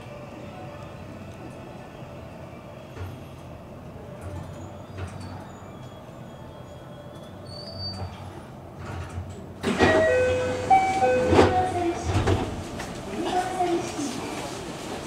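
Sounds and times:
electric train humming: 9.6s - 15.0s.

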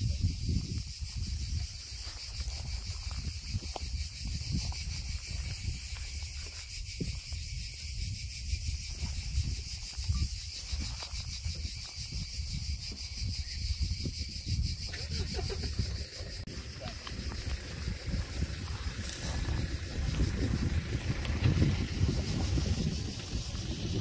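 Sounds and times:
insects shrilling: 0.0s - 24.0s
wind rumbling on microphone: 0.0s - 24.0s.

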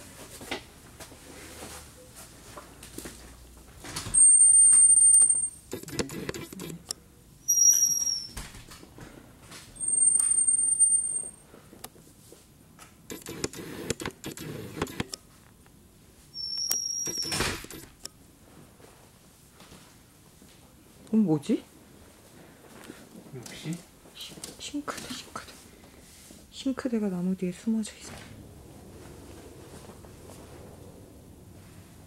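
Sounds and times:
high thin squeaks: 4.1s - 6.8s, 7.5s - 8.4s, 9.8s - 11.4s, 16.3s - 18.0s.

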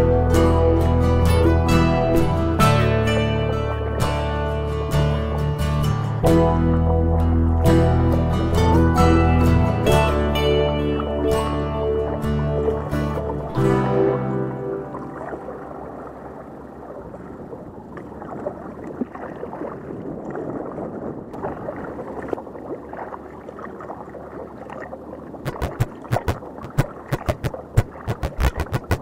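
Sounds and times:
water gurgling around kayak: 9.8s - 29.0s
sharp knocks: 25.5s - 29.0s.

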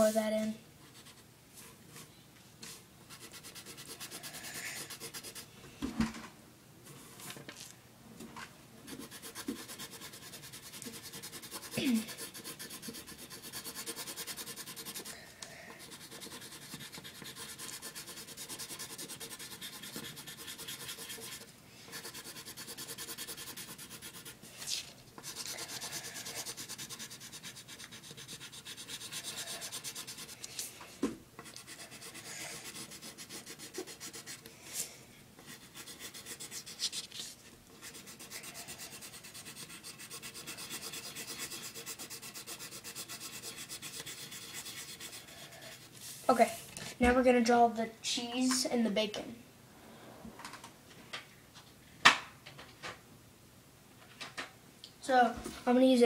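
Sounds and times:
pencil scratching on paper: 3.1s - 5.5s, 8.9s - 30.6s, 31.4s - 34.5s, 35.4s - 46.6s.

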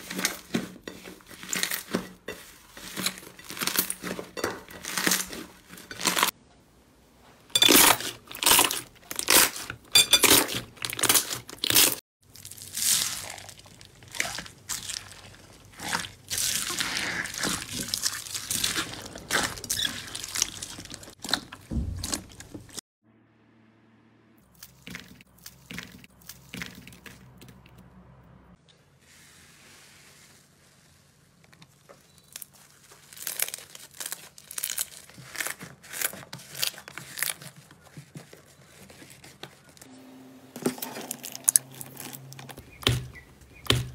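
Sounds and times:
slime crackling and squelching: 7.8s - 22.8s, 31.6s - 39.9s
foam bead slime crunching: 10.4s - 22.5s, 30.0s - 39.9s.

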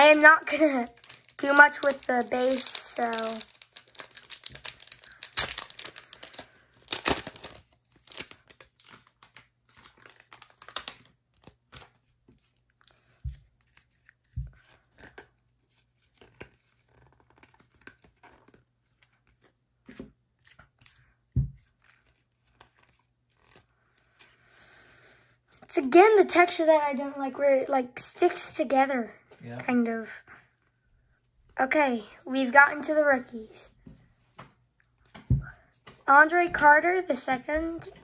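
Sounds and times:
foil pack tearing and crinkling: 0.1s - 12.0s.

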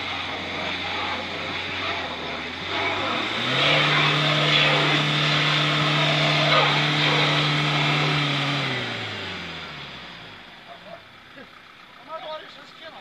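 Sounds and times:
wheels spinning in snow: 0.0s - 10.2s
van engine revving: 0.0s - 13.0s.

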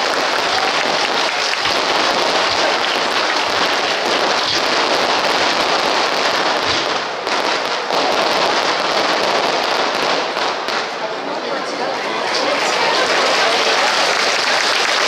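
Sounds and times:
fireworks crackling: 0.0s - 11.4s.

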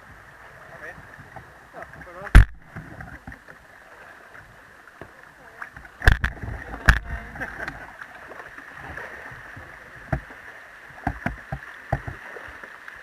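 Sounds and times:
sharp splashes: 2.2s - 2.8s, 6.0s - 7.6s.

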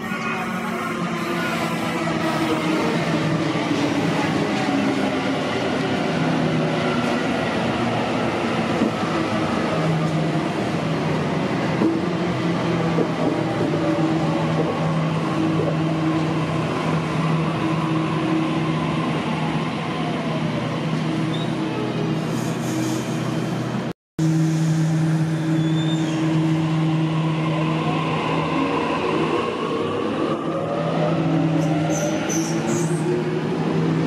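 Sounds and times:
low hum of train equipment: 20.9s - 34.0s.

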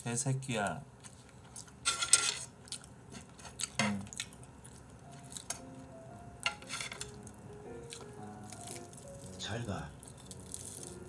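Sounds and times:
crispy chicken rustling: 7.9s - 11.0s.

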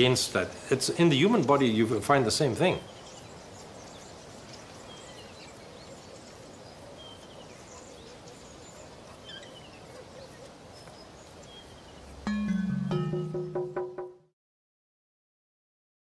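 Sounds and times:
steady background hiss: 0.0s - 13.8s
faint bird chirps: 2.7s - 12.2s.

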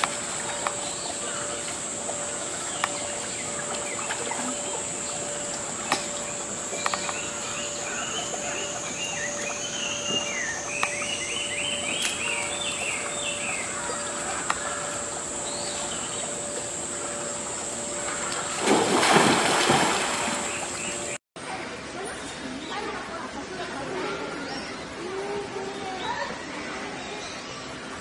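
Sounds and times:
high-pitched insect drone: 0.0s - 21.2s.

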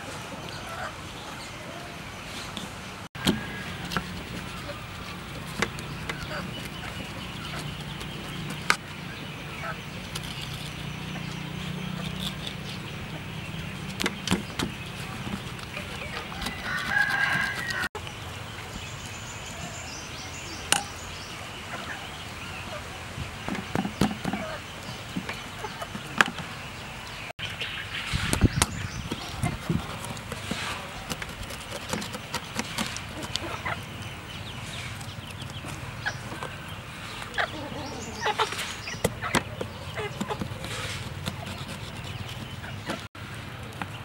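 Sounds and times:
chicken calling: 34.8s - 43.1s.

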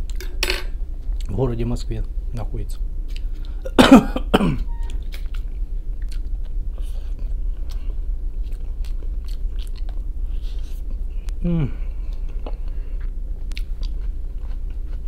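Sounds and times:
man coughing: 3.6s - 4.7s
person chewing: 4.8s - 15.0s.

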